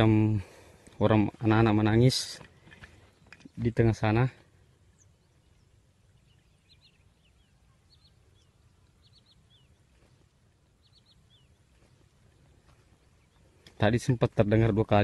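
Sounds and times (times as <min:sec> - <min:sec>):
faint high bird chirps: 0:03.0 - 0:14.2.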